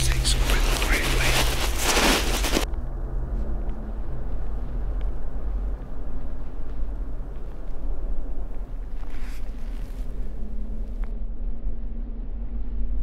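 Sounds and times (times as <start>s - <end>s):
rustling noise: 0.0s - 2.7s, 4.0s - 11.1s.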